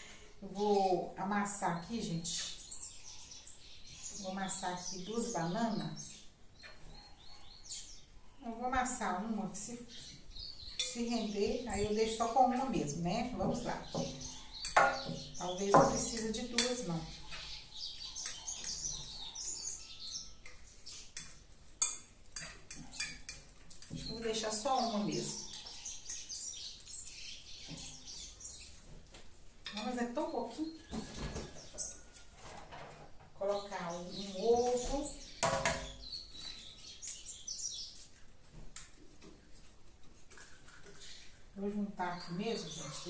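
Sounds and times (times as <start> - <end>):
birds chirping: 0.0 - 43.0
kitchen handling knocks: 14.8 - 16.2.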